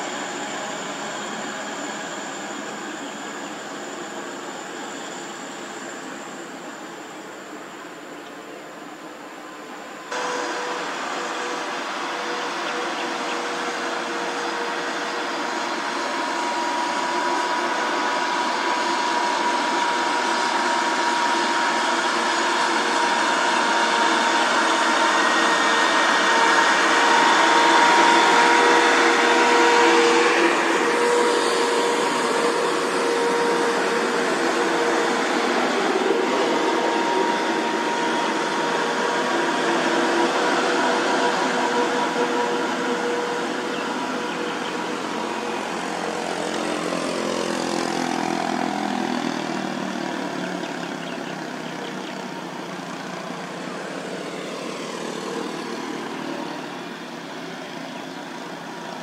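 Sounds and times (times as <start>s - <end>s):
truck engines droning: 0.0s - 59.0s.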